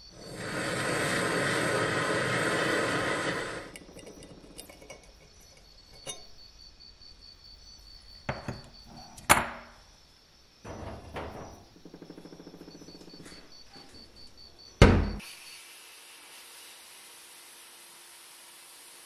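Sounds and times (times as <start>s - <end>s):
gas torch flame hissing: 0.0s - 6.2s.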